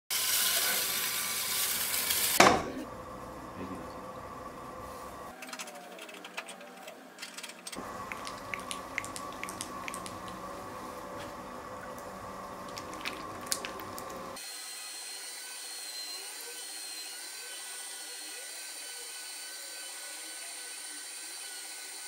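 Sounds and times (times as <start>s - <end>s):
pottery wheel humming: 0.2s - 14.4s
hands working wet clay: 7.3s - 11.4s.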